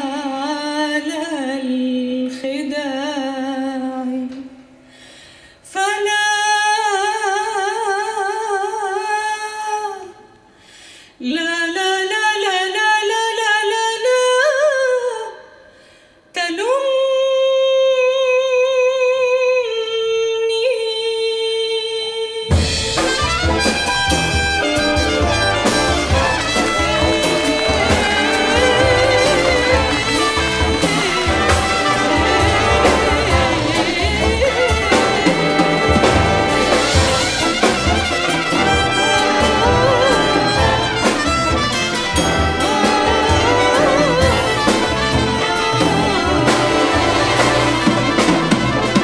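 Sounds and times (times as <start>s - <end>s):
woman singing unaccompanied: 0.0s - 4.5s, 5.7s - 10.2s, 11.2s - 15.4s, 16.4s - 22.6s, 25.0s - 37.4s, 38.6s - 41.2s, 42.2s - 48.1s
big band with drums and brass: 22.5s - 49.0s.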